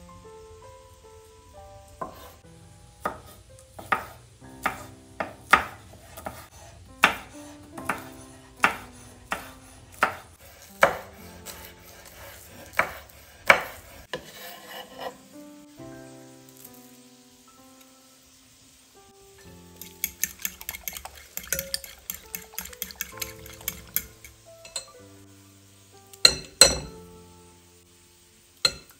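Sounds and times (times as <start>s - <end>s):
knife chopping on wooden board: 3.0s - 14.4s
knife scraping board: 5.6s - 7.3s, 7.9s - 15.2s, 19.8s - 24.3s.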